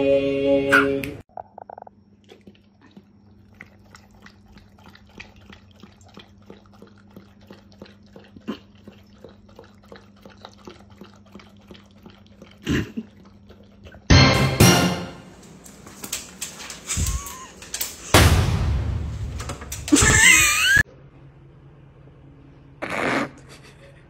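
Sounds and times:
dog lapping from metal bowl: 2.2 - 14.6.

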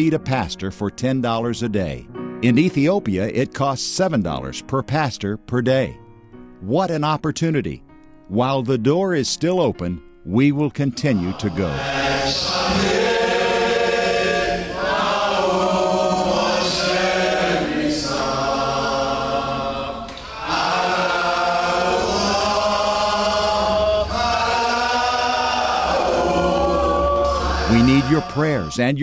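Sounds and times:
group singing without instruments: 11.0 - 28.9.

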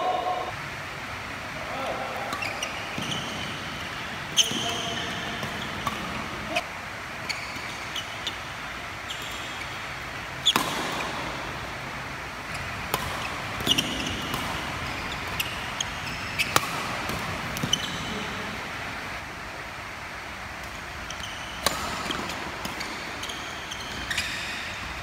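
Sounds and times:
racket hitting shuttlecock: 2.2 - 6.6, 9.2 - 11.9, 12.5 - 18.7, 20.6 - 24.9
court shoes squeaking: 2.2 - 18.8, 20.6 - 25.0.

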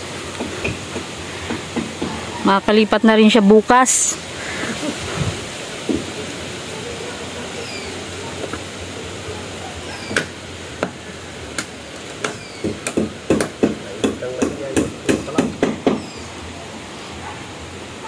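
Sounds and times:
hammer driving nails into wood: 12.2 - 16.0.

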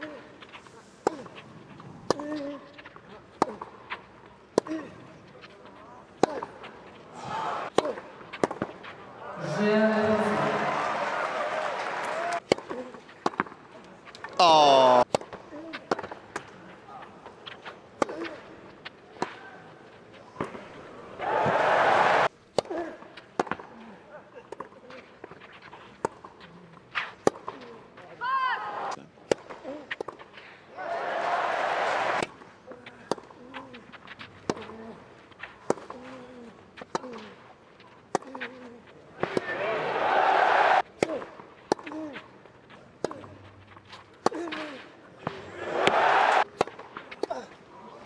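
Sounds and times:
tennis ball hit with rackets: 6.2 - 6.6, 7.6 - 8.9, 12.4 - 13.6, 15.0 - 16.5, 27.0 - 27.6, 35.4 - 36.2, 44.2 - 47.5.

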